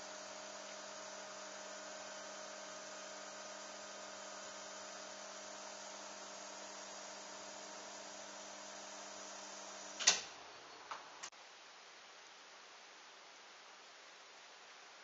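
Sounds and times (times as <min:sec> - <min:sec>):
faint electrical hum: 0:00.0 - 0:15.0.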